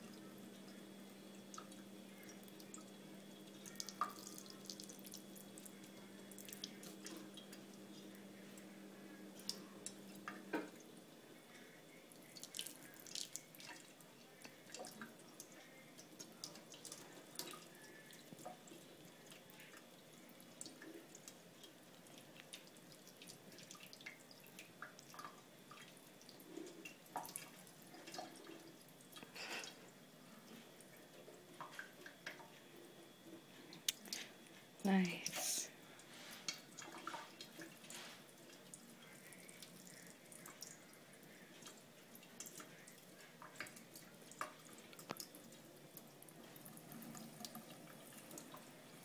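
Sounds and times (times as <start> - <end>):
water drips and splashes: 1.4 - 8.7, 12.1 - 29.8, 35.0 - 49.0.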